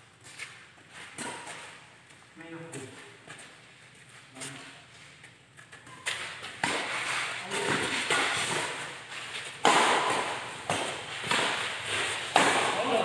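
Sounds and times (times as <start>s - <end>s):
rackets hitting shuttlecock echoing: 1.0s - 1.9s, 5.2s - 13.0s.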